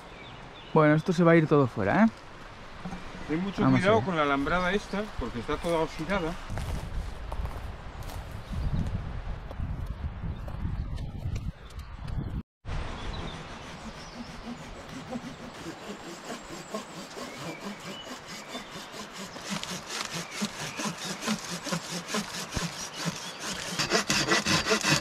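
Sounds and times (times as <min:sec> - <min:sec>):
hand saw cutting branch: 0:13.2 - 0:25.0.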